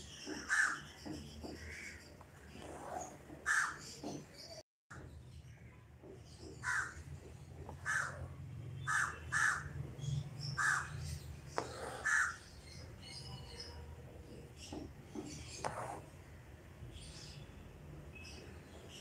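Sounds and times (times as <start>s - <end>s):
bird calling: 7.8s - 9.8s, 10.6s - 12.9s.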